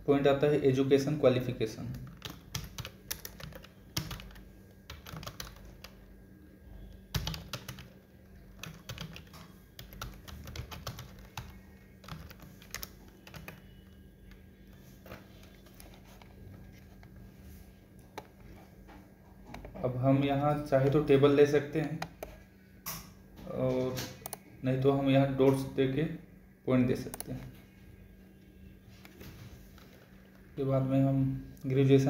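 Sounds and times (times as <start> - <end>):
steady low hum: 0.0 - 32.0
keyboard typing: 1.8 - 6.1, 6.8 - 17.2, 23.8 - 24.5, 26.9 - 27.5.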